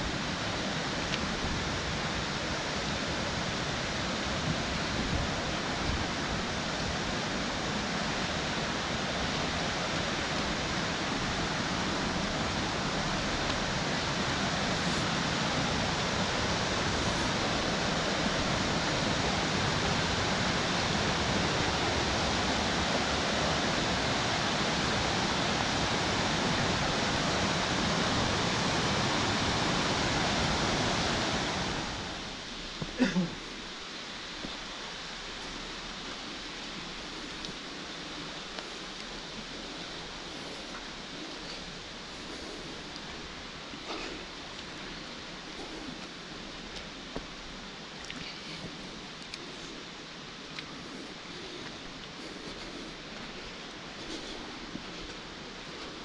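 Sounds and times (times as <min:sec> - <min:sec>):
falling water rushing: 0:00.0 - 0:56.0.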